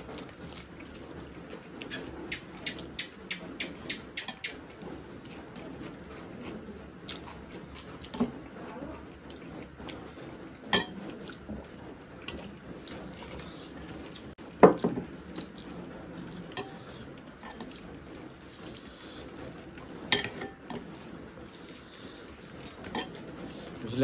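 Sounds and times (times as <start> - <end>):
steel tableware clinking: 10.7 - 11.0, 20.1 - 20.9, 22.8 - 23.3.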